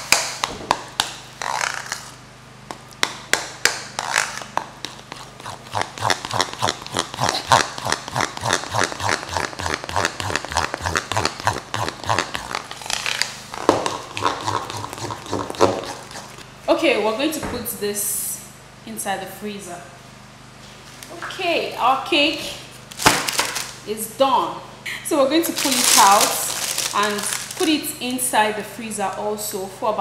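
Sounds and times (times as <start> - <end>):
spoon stirring icing in bowl: 3.9 - 12.5.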